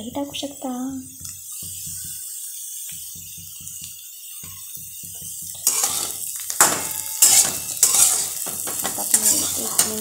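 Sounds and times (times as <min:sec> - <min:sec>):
spatula clanking against pan: 0:02.9 - 0:10.0
metal spatula scraping pan: 0:04.4 - 0:10.0.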